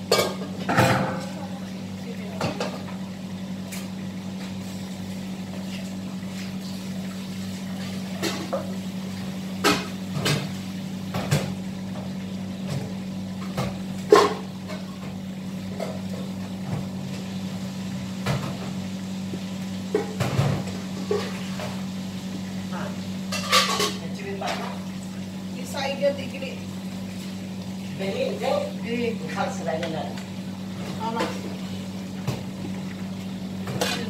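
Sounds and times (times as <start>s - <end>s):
pots and utensils clinking: 0.0s - 1.5s, 7.8s - 8.8s, 9.6s - 16.9s, 19.9s - 21.9s, 22.8s - 24.9s, 33.6s - 34.0s
low machine hum: 0.0s - 34.0s.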